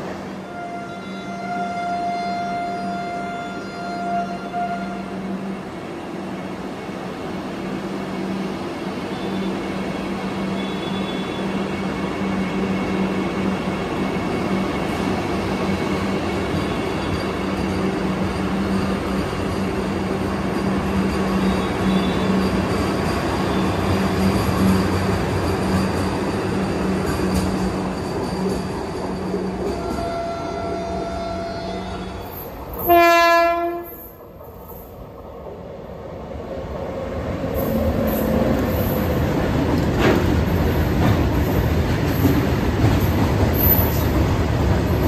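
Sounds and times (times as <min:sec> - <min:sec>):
electric train passing: 0:02.9 - 0:45.0.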